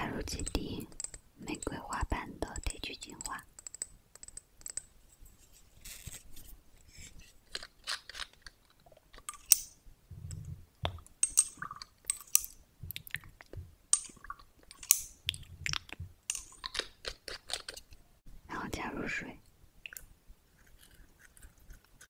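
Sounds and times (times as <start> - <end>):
soft low thumps: 10.1 - 11.1
glass pipette tapping: 13.9 - 15.0.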